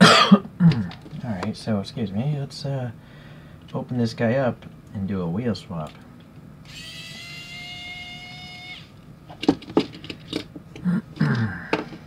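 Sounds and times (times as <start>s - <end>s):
electric screwdriver whining: 6.6s - 9.0s.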